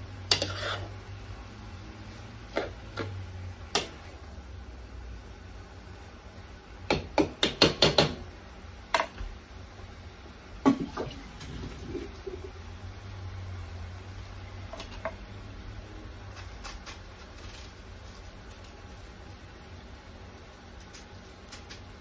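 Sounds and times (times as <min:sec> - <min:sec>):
utensil knocking on frying pan: 0:06.9 - 0:08.2.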